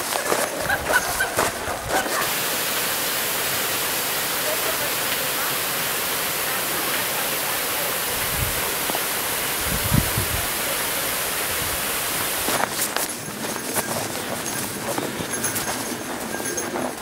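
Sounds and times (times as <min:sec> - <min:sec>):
waterfall rushing: 0:00.0 - 0:13.1.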